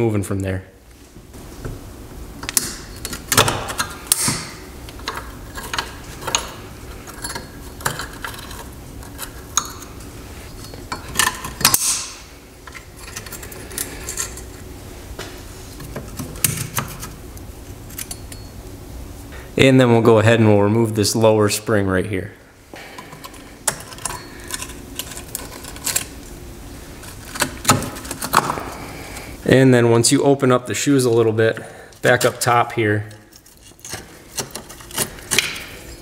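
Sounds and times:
metal tool clinking on springs: 23.7s - 24.8s.

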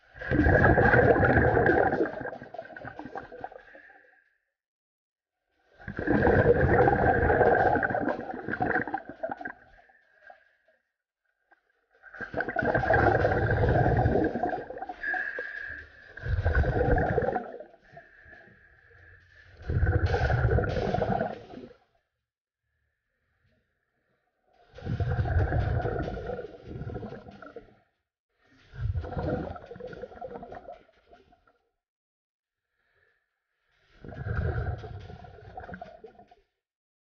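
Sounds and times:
exhaled bubbles rushing: 0.0s - 3.9s, 5.8s - 9.8s, 12.0s - 18.2s, 19.6s - 21.8s, 24.8s - 27.7s, 28.7s - 30.9s, 34.0s - 36.3s.

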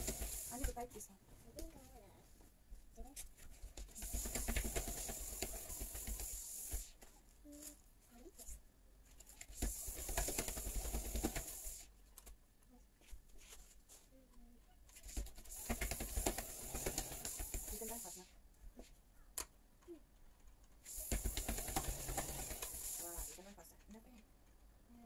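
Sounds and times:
treadmill belt rolling and clattering: 0.0s - 0.7s, 15.2s - 18.0s, 20.9s - 23.4s.

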